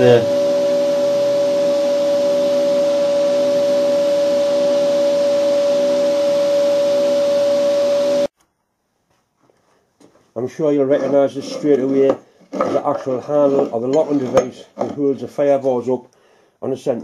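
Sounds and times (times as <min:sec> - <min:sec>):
metal lathe whine: 0:00.0 - 0:08.3.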